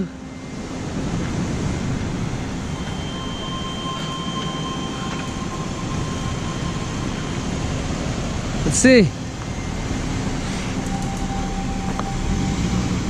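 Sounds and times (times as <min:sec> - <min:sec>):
faint steady high tone: 0:00.0 - 0:13.0.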